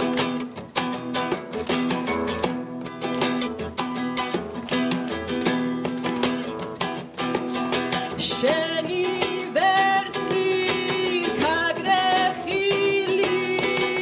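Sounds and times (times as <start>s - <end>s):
acoustic guitar strumming: 0.0s - 14.0s
young woman singing: 8.0s - 14.0s.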